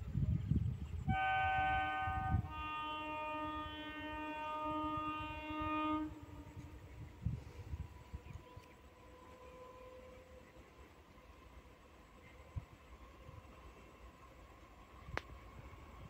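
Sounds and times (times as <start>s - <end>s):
train horn blasts: 0.9s - 10.8s.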